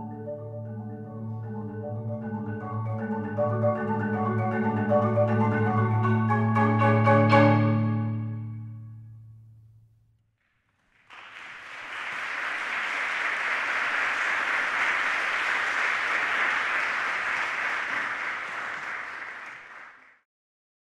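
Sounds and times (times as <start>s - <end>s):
audience applauding: 10.8s - 20.2s.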